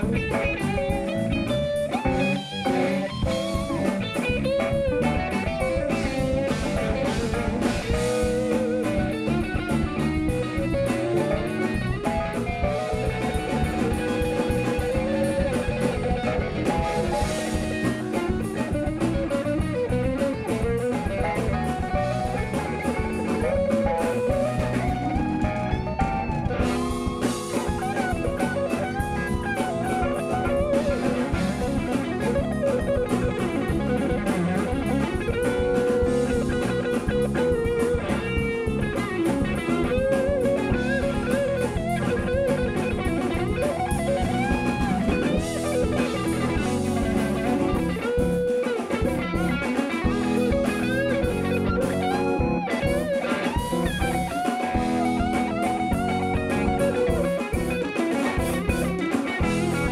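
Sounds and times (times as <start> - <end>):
bass guitar: 0.0 - 59.9
drum kit: 0.0 - 59.9
electric guitar bending notes: 0.0 - 59.9
held chords: 0.0 - 59.9.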